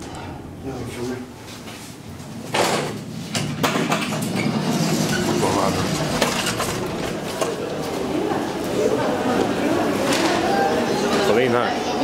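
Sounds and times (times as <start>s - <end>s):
station hall noise: 2.0s - 12.0s
elevator doors sliding open: 2.4s - 11.2s
voices: 5.1s - 12.0s.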